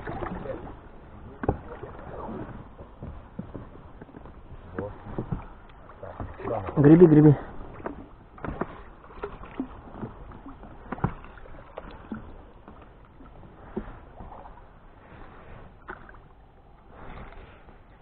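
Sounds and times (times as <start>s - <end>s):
oar paddling through water: 0.0s - 18.0s
water splashing: 0.0s - 18.0s.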